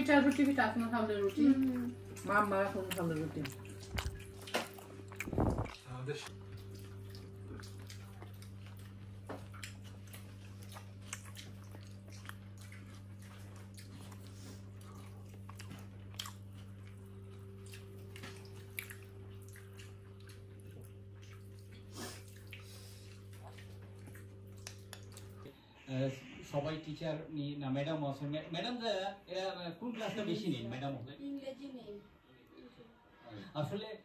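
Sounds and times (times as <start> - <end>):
people chewing: 0.0 - 25.6
steady low hum: 0.0 - 28.5.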